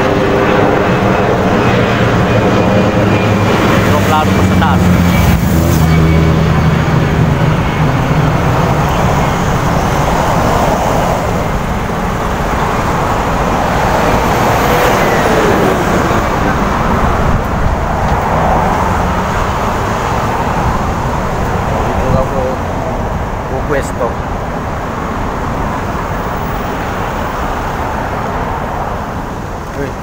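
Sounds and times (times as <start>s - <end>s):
vehicle engine low hum: 0.0s - 27.0s
cars passing: 0.0s - 30.0s.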